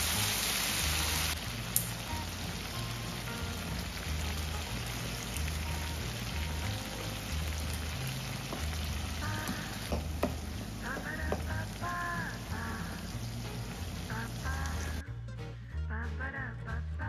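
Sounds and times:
sauce sizzling in frying pan: 0.0s - 15.0s
background music with low beat: 1.3s - 17.0s
spatula knocking in pan: 8.4s - 11.7s.

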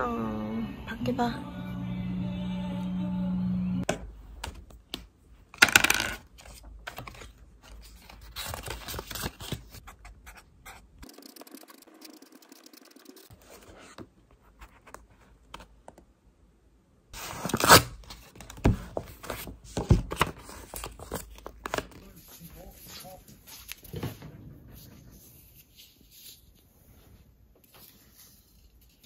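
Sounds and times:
paper rustling: 6.4s - 9.8s, 17.2s - 24.2s, 27.6s - 29.0s
marker pen scratching on card: 9.9s - 13.3s.

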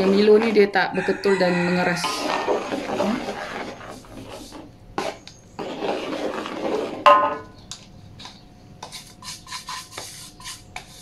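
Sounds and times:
spoon scraping in wok: 0.0s - 7.5s.

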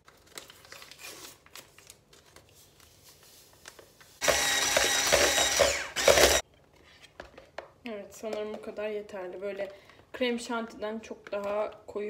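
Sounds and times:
electric mixer whining: 4.2s - 6.4s.

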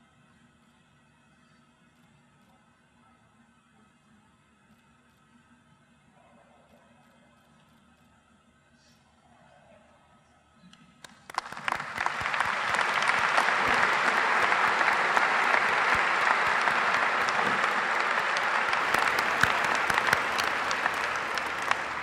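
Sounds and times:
audience applause: 11.1s - 22.0s.

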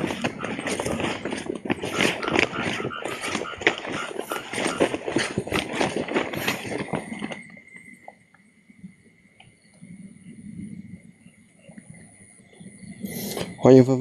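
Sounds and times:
leaves brushing: 0.0s - 7.8s
footsteps on dirt path: 0.0s - 8.2s.

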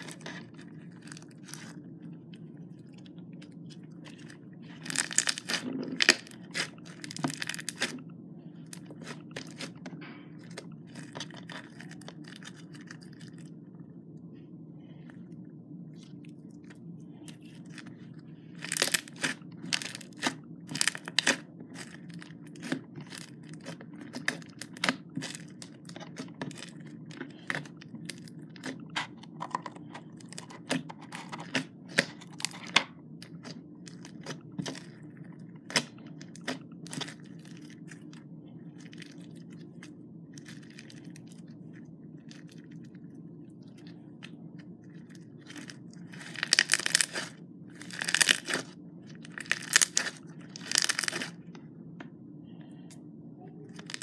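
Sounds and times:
crackling slime pops: 46.2s - 48.7s, 49.4s - 51.3s.

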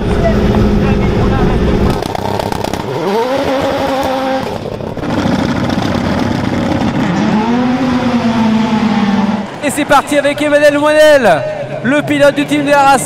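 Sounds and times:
race car engines revving: 0.0s - 13.0s.

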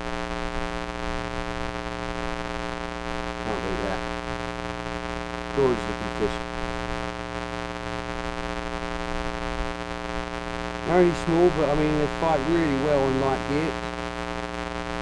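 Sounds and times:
electrical hum: 0.0s - 15.0s.

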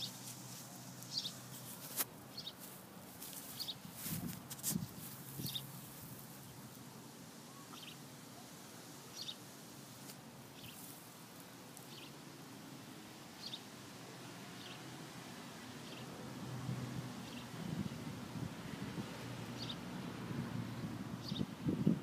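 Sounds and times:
faint outdoor ambience: 0.0s - 22.0s
bird chirping: 1.0s - 1.4s, 2.3s - 2.6s, 5.4s - 5.7s, 7.5s - 8.0s, 9.1s - 9.4s, 11.9s - 12.1s, 13.4s - 13.6s.

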